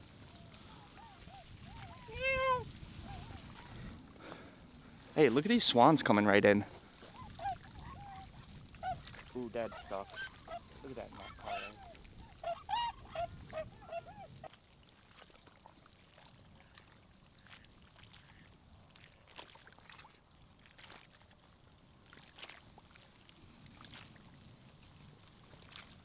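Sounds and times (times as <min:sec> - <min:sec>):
swans calling: 0:00.0 - 0:03.8, 0:07.0 - 0:14.6.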